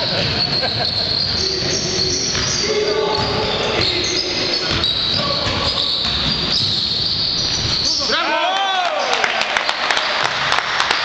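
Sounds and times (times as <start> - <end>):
basketball bouncing on wooden court: 0.0 - 7.9
players and spectators voices: 0.0 - 11.0.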